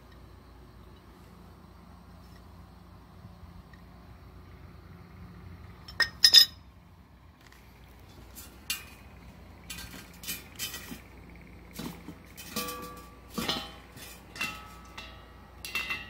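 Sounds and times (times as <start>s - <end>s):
wrench clanking on metal: 11.8s - 16.0s.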